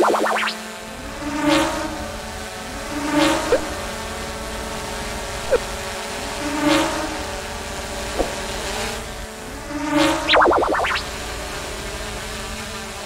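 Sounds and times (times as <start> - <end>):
drone propellers whirring: 0.0 - 13.0
short rising chirps: 10.3 - 11.1.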